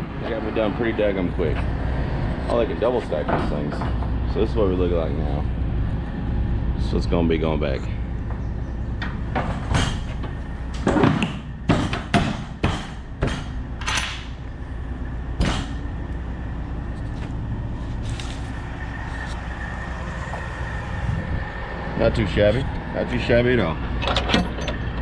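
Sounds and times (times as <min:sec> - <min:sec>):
diesel truck idling: 0:00.0 - 0:11.7, 0:12.6 - 0:25.0
metal clanks and knocks: 0:02.4 - 0:04.2, 0:09.0 - 0:14.4, 0:15.4 - 0:15.9, 0:23.9 - 0:25.0
faint steady whine: 0:13.0 - 0:25.0.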